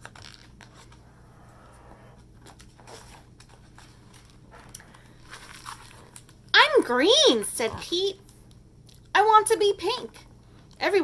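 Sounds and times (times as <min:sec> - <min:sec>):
low steady hum: 0:00.0 - 0:11.0
paper rustling: 0:02.4 - 0:06.4.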